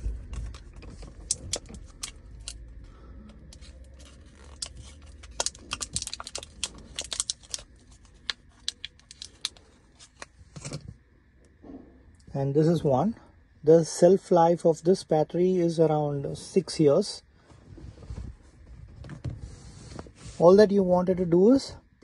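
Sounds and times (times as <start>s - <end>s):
plastic blister pack crinkling: 0.0s - 2.8s, 3.5s - 10.4s.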